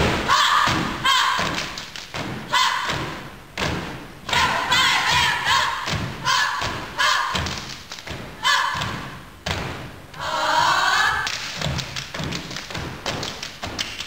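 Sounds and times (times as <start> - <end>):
group shouting: 0.2 - 1.6, 2.5 - 3.0, 4.3 - 7.4, 8.4 - 9.0
people clapping: 1.4 - 2.2, 7.4 - 8.1, 11.2 - 14.0.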